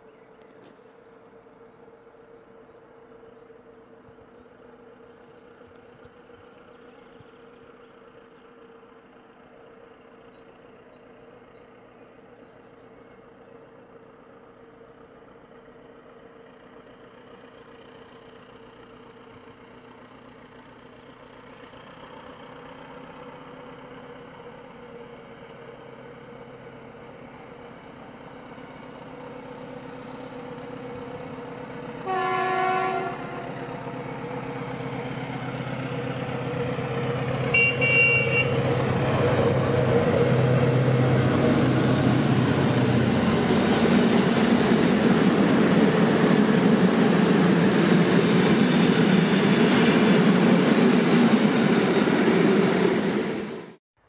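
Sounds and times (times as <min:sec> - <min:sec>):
diesel locomotive engine drone: 0:00.0 - 0:53.8
locomotive horn blast: 0:32.0 - 0:33.6, 0:37.4 - 0:40.1.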